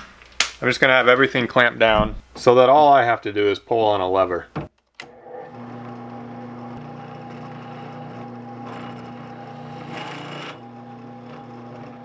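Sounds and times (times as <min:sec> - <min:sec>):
drill press motor hum: 0:05.0 - 0:12.0
drill bit scraping metal sheet: 0:06.8 - 0:12.0.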